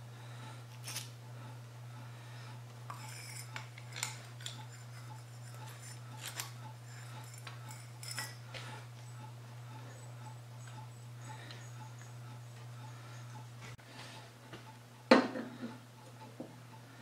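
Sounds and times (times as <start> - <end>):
steady low hum: 0.0 - 17.0
steel parts clinking: 2.9 - 8.6.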